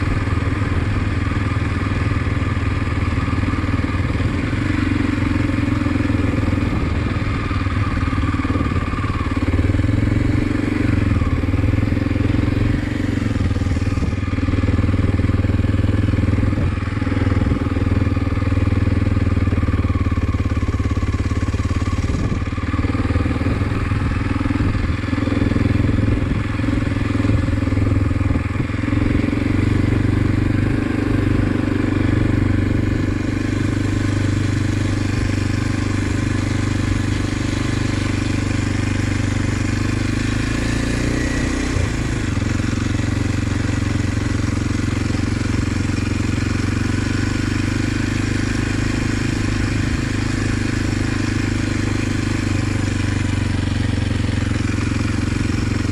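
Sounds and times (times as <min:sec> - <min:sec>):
motorcycle engine running: 0:00.0 - 0:55.9.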